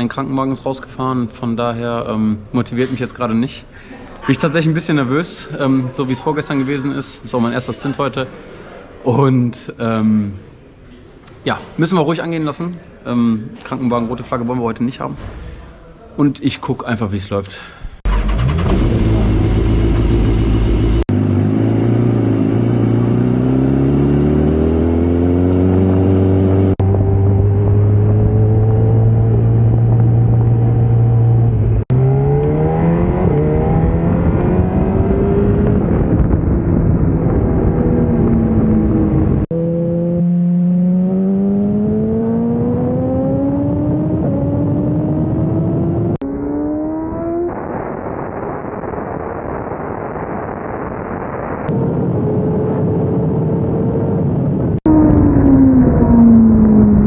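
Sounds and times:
motorcycle engine accelerating: 18.1 - 49.1, 51.6 - 57.0.

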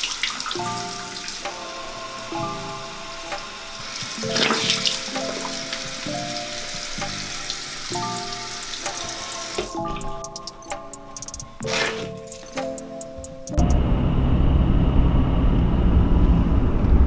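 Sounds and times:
sink faucet running: 0.0 - 10.6
background music with sustained notes: 0.0 - 14.8
water splashing onto face: 4.1 - 7.6.

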